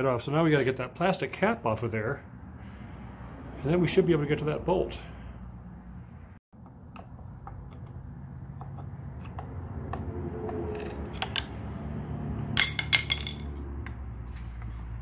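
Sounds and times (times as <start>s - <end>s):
screwdriver clicking and scraping: 6.9s - 11.6s.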